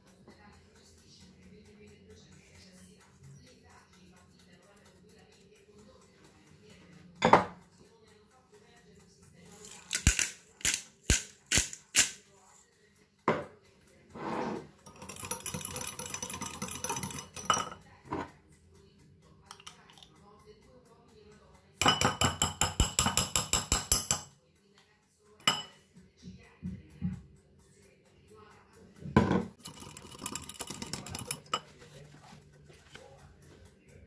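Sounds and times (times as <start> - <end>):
pepper grinder crunching: 9.6 - 12.2, 29.6 - 31.3
whisk clinking against glass bowl: 14.8 - 17.8, 21.8 - 24.3, 25.4 - 25.8, 29.3 - 33.0.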